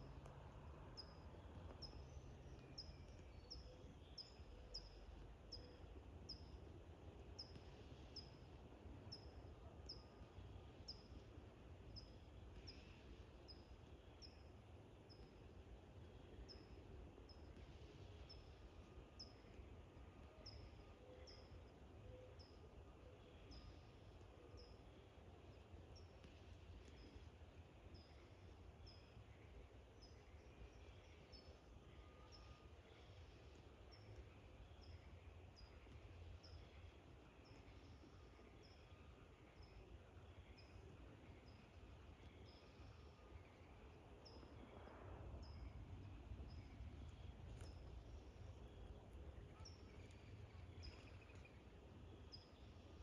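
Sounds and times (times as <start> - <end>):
faint low rumble: 0.0 - 53.0.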